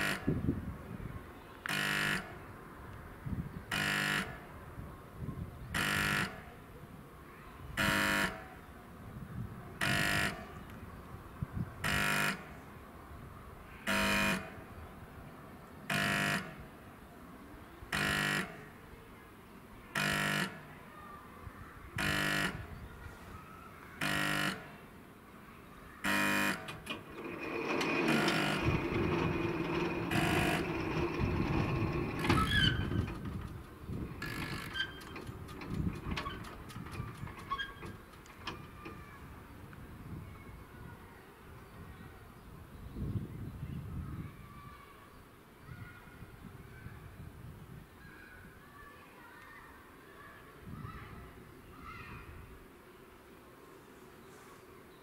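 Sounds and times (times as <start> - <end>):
level crossing buzzer blasts: 0.0 - 0.4, 1.7 - 2.4, 3.7 - 4.5, 5.8 - 6.4, 7.8 - 8.5, 9.8 - 10.5, 11.8 - 12.5, 13.9 - 14.6, 15.9 - 16.6, 17.9 - 18.6, 20.0 - 20.7, 22.0 - 22.7, 24.0 - 24.7, 26.0 - 33.0.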